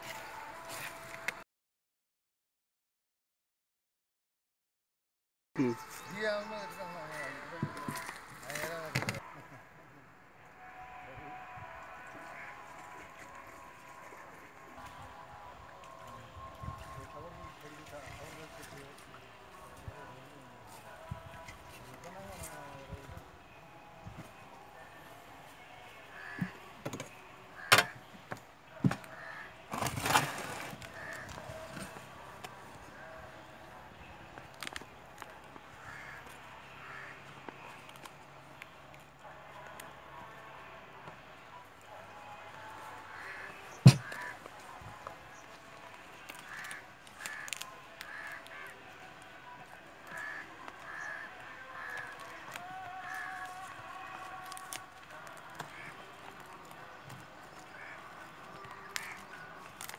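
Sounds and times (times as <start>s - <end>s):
crows cawing: 26.1s - 26.6s, 27.5s - 28.0s, 28.9s - 29.6s, 30.8s - 32.0s, 35.7s - 37.7s, 43.1s - 44.5s, 46.2s - 48.9s, 50.0s - 56.7s, 57.5s - 59.9s
leaf crackling: 29.1s - 33.1s, 42.6s - 59.9s.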